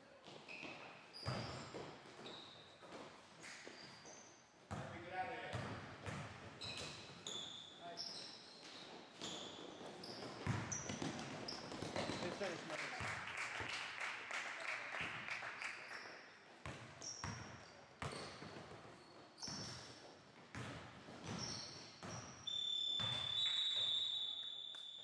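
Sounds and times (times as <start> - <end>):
shoe squeaks: 0.3 - 4.4, 6.6 - 12.3, 17.0 - 20.1, 21.2 - 25.0
basketball bouncing on hardwood floor: 10.4 - 12.2.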